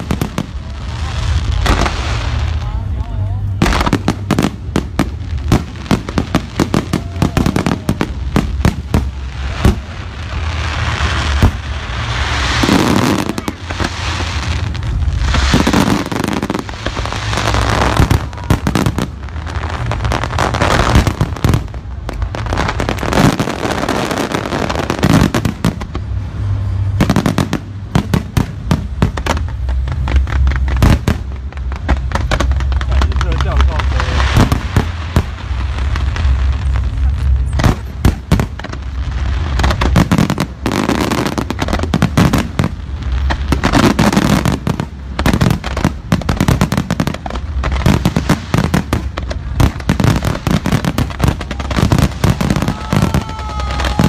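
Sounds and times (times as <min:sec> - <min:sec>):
firework bangs: 0:00.0 - 0:54.0
crackling and hiss of shells: 0:03.6 - 0:26.1.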